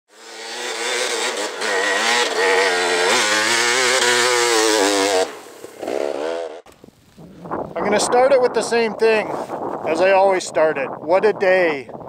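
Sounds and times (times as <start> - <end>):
dirt bike engine revving: 0.1 - 6.7
tire spinning in snow: 0.1 - 8.1.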